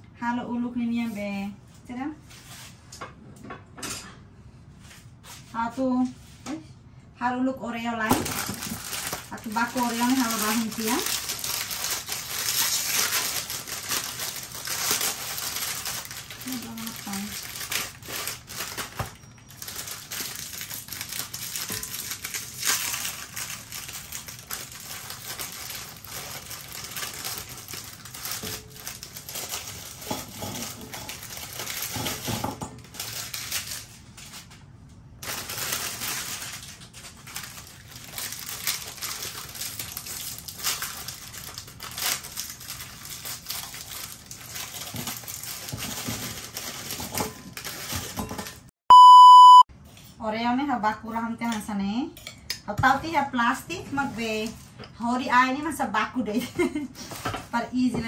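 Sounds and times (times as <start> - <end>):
cookies crushed in glass bowl: 8.2 - 34.0, 35.2 - 48.7.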